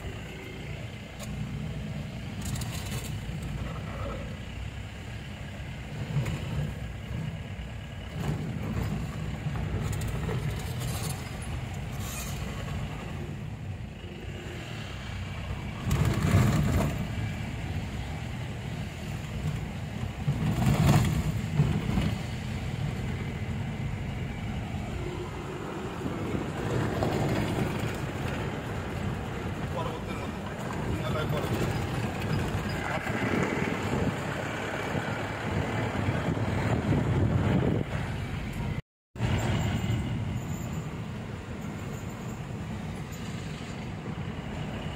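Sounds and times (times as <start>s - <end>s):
car engine and tyres rumbling: 0.0s - 44.9s.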